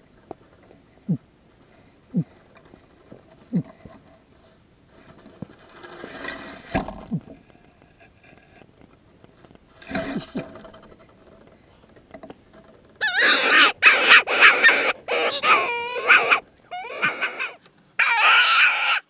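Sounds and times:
hand-blown distress call squeals: 0:13.0 - 0:19.0.

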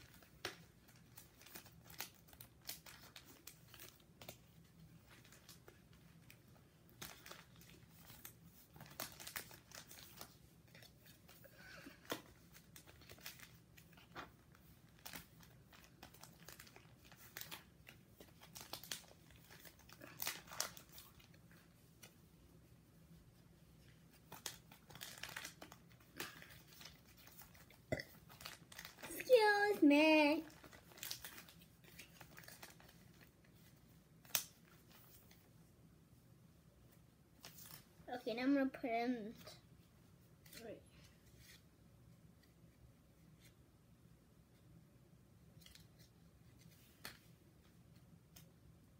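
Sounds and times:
plastic pages crinkling: 0:00.0 - 0:22.2, 0:23.4 - 0:35.5, 0:37.3 - 0:37.9.

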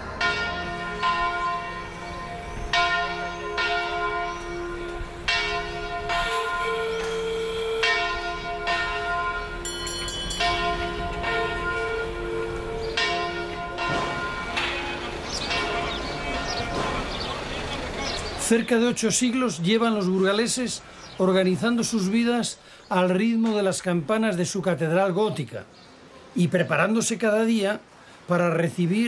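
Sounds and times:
church bells ringing: 0:00.0 - 0:22.2.

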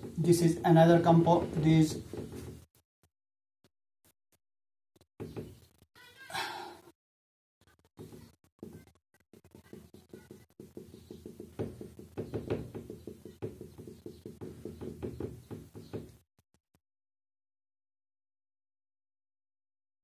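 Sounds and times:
marker tapping on a whiteboard: 0:00.0 - 0:02.7, 0:05.2 - 0:05.7, 0:07.9 - 0:16.2.

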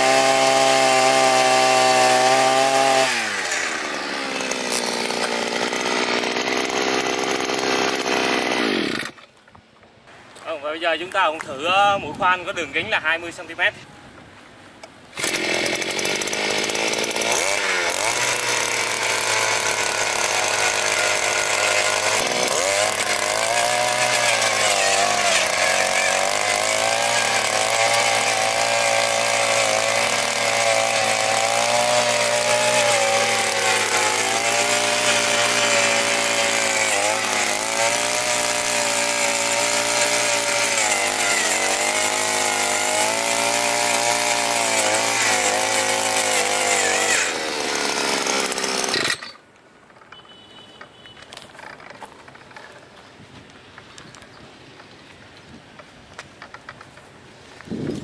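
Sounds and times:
two-stroke auger engine straining: 0:00.0 - 0:09.3, 0:15.1 - 0:52.8.

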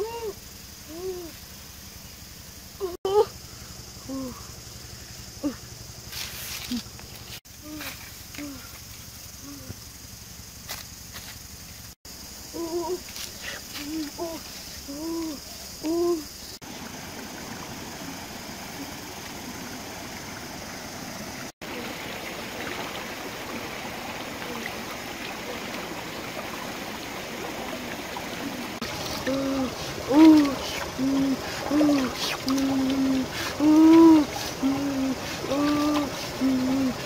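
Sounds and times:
stream water running over rocks: 0:00.0 - 0:37.0
short hooting calls: 0:28.8 - 0:37.0.

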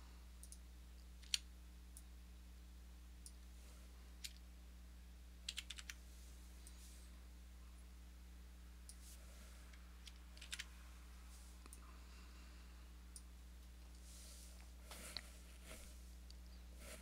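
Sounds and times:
low hum: 0:00.0 - 0:17.0
mouse and keyboard clicks: 0:01.2 - 0:01.4, 0:10.0 - 0:10.7.

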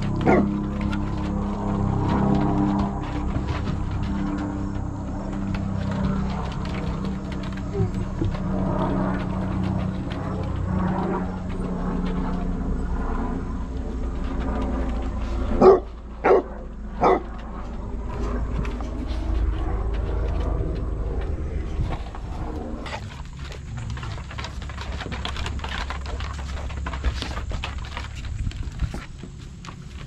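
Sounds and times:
dog claws clicking on wooden deck: 0:00.0 - 0:30.0
dog barking: 0:00.2 - 0:00.5, 0:15.6 - 0:17.3.

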